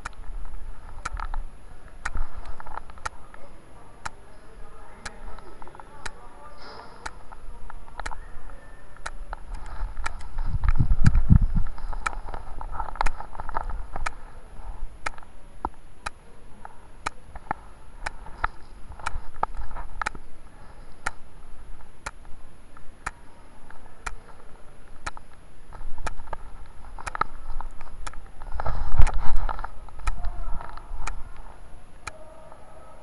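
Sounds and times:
sharp clicks ticking: 0.0 - 3.2, 7.0 - 8.2, 9.0 - 14.2, 17.0 - 20.3, 20.9 - 23.4, 24.9 - 31.3
muffled rustling: 0.0 - 15.8, 16.5 - 31.7
low rumbling: 7.0 - 16.0.

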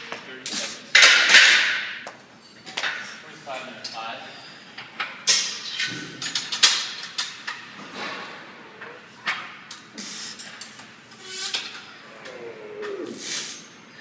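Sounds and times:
forceful hissing breaths: 9.9 - 12.3, 12.9 - 14.0
strained groan: 12.0 - 13.7.

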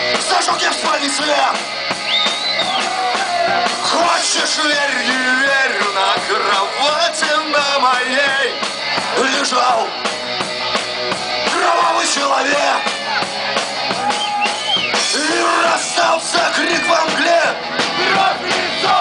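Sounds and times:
punk rock band playing: 0.0 - 19.0
man singing into microphone: 3.8 - 8.6, 9.2 - 9.9, 11.5 - 12.9, 15.0 - 19.0.

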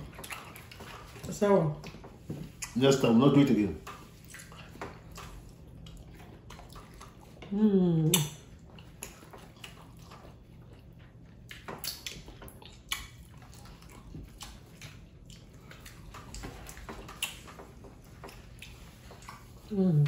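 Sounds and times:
wet chewing: 0.0 - 20.0
lip smacks: 2.6 - 2.8, 3.9 - 10.4, 11.4 - 19.6.

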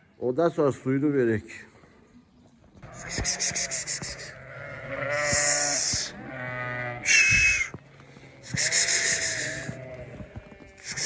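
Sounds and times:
sheep bleating: 2.8 - 11.0.

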